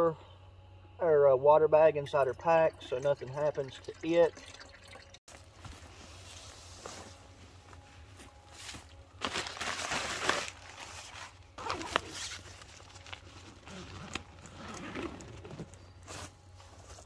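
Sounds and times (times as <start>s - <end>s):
nylon tent rustling: 5.3s - 17.0s
scuffs in dry leaves: 5.4s - 14.6s.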